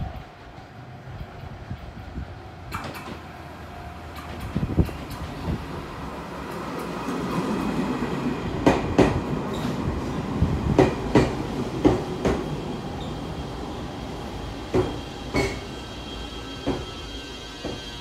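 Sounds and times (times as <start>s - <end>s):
train wheels rumbling: 0.0s - 18.0s
wheels clacking over rail joints: 4.1s - 5.7s.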